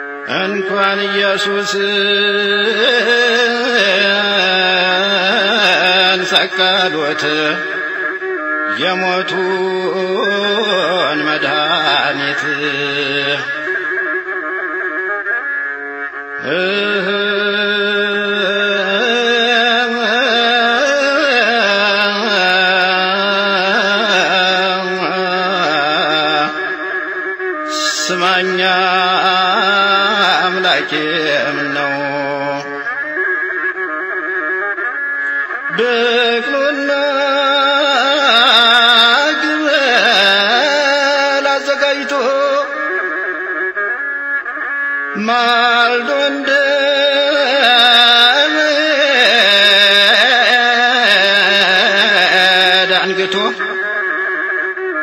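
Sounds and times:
man chanting a hymn: 0:00.3 - 0:08.0
man singing a hymn: 0:16.4 - 0:26.6, 0:45.2 - 0:53.8.

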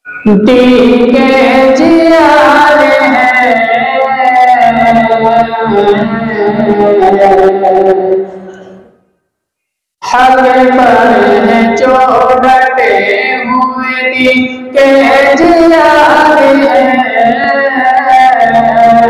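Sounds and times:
man singing into a microphone: 0:10.2 - 0:19.0.

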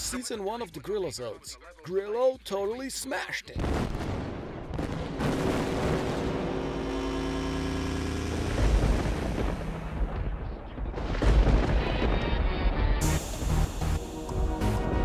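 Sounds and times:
booming bass hits: 0:07.9 - 0:12.2
soundtrack music with held tones: 0:11.5 - 0:15.0.

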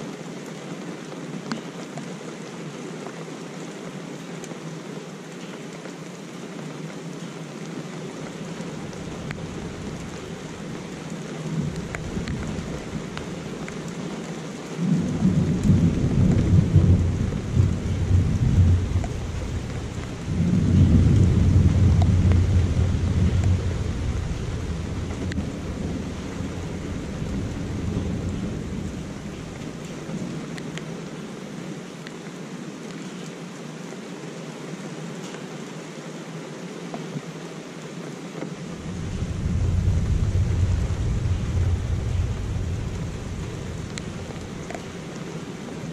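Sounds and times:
steady rain: 0:00.0 - 0:45.9
thunder rumbling: 0:08.7 - 0:14.2, 0:14.8 - 0:30.7, 0:38.8 - 0:45.9.

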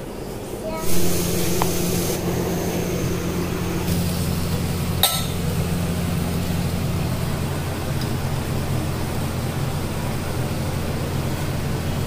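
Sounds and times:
exhaust fan humming: 0:00.0 - 0:12.0
sharp clink: 0:05.0 - 0:05.4.

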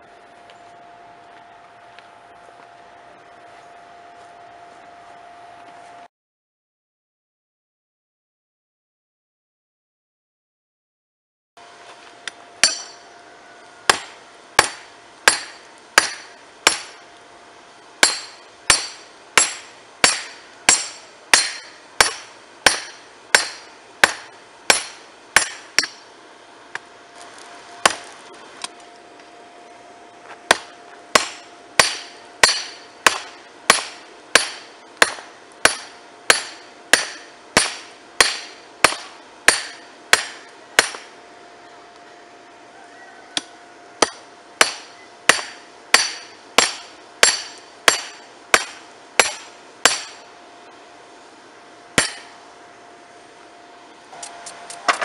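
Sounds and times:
hammer clanking on hot metal: 0:12.6 - 0:13.1, 0:13.9 - 0:17.0, 0:18.0 - 0:26.1, 0:30.5 - 0:41.1, 0:44.0 - 0:50.3, 0:52.0 - 0:52.4.

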